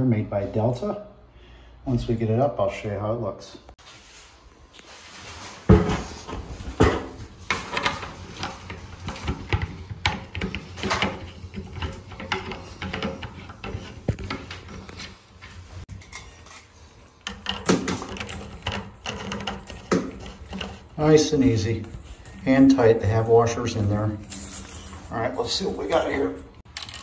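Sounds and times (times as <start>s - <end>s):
shower fittings clicking and rattling: 7.5s - 15.0s, 15.9s - 27.0s.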